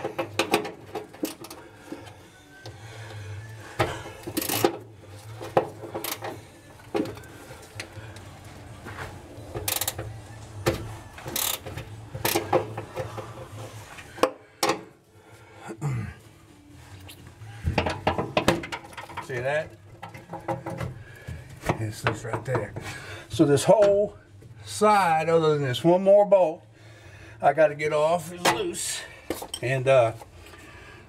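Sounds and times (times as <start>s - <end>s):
wrench clinking and scraping on bolt: 4.2s - 4.8s, 29.3s - 29.8s.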